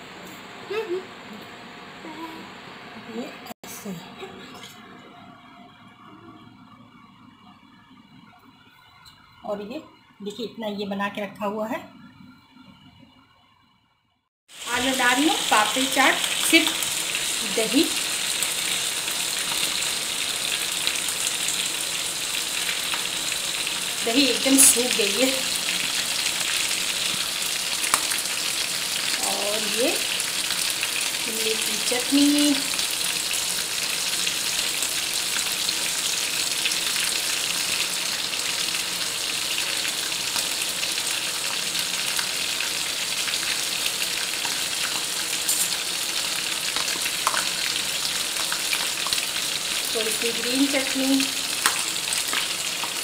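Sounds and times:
gas stove hissing: 14.5 - 53.0
pan sizzling: 14.5 - 53.0.

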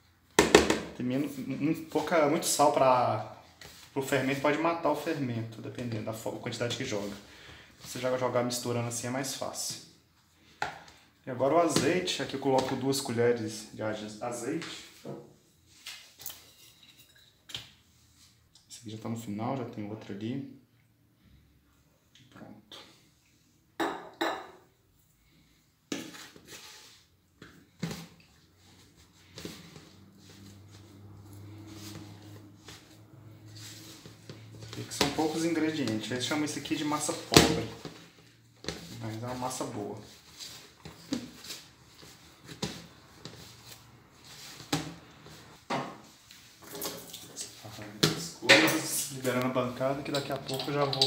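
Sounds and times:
dough mixing and scraping: 1.1 - 9.4, 25.4 - 51.0.

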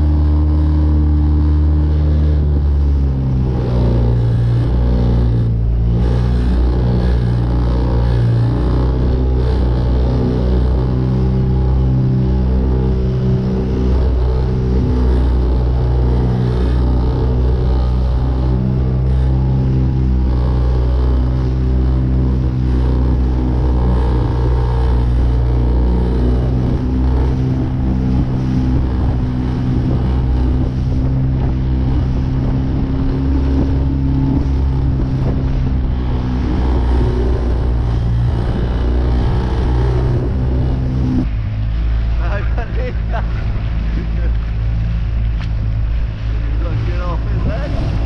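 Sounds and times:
outboard motor running: 0.0 - 48.0
water splashing along hull: 0.0 - 48.0.

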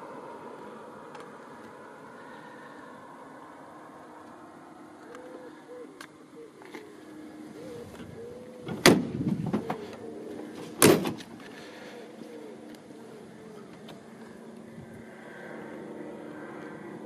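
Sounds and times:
car door clunking: 8.6 - 9.8.

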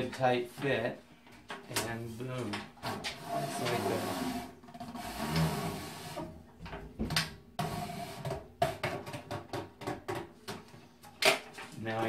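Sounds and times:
wood scraping sheet metal: 1.8 - 6.4, 7.6 - 8.5.

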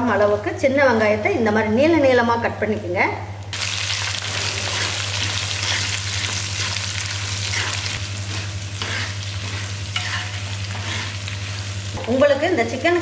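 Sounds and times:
food sizzling in hot oil: 3.5 - 13.0
steady low hum: 4.2 - 13.0
ladle stirring in pot: 7.4 - 11.6.

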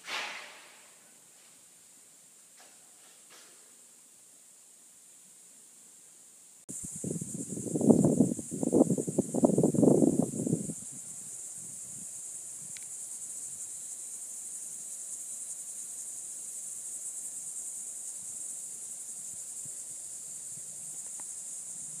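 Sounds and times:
high-pitched insect chorus: 6.1 - 22.0.

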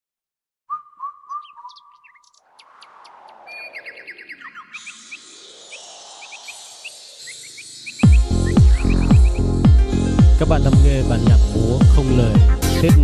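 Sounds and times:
small birds chirping: 0.7 - 12.2
whooshing hiss sweeping in pitch: 2.4 - 10.2
steady high hiss: 4.8 - 9.6.

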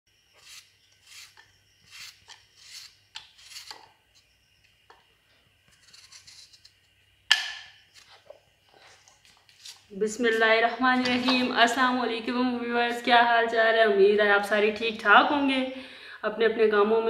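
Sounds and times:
knife slicing raw potatoes: 0.3 - 3.9.

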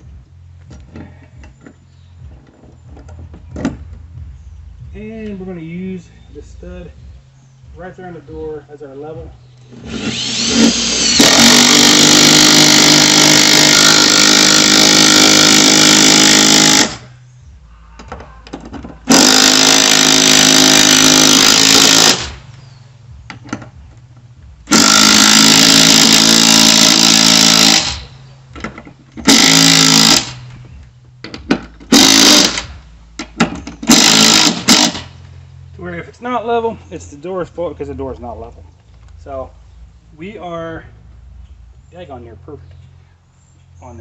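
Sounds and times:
cordless driver driving bolts: 9.6 - 17.0, 18.8 - 22.4, 24.7 - 30.5, 31.2 - 35.1.

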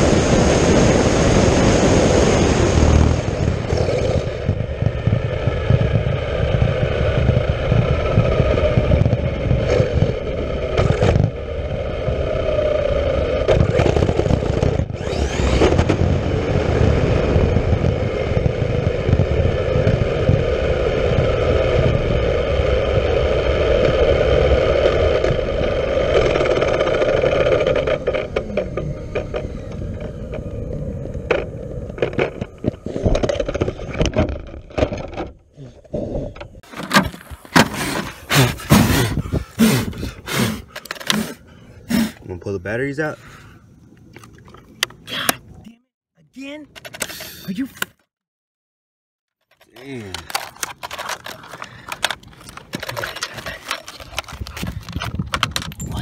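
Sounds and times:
wind rush: 0.0 - 10.6, 37.2 - 40.8, 54.0 - 56.0
electric motor whine: 2.6 - 34.1
tyre noise: 23.8 - 42.4.

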